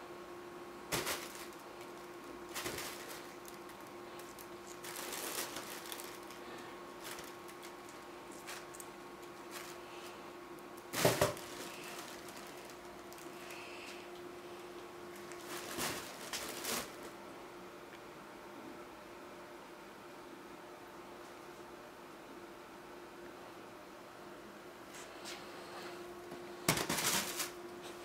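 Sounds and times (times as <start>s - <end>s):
faint steady hum: 0.0s - 28.0s
fabric tunnel rustling: 0.9s - 9.8s, 10.8s - 13.4s, 15.2s - 17.1s.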